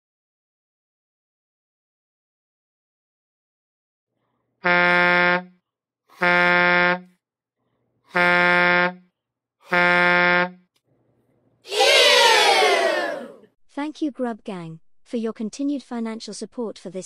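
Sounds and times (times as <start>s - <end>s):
deep air horn blasts: 4.6s - 5.6s, 6.2s - 7.1s, 8.1s - 9.1s, 9.7s - 10.6s.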